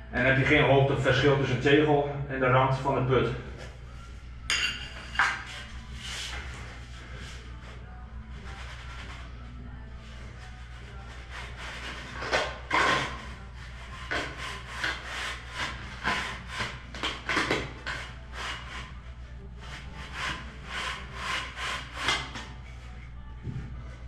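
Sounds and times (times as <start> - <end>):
wooden lath scraping mortar: 10.4 - 19.0, 19.6 - 23.0.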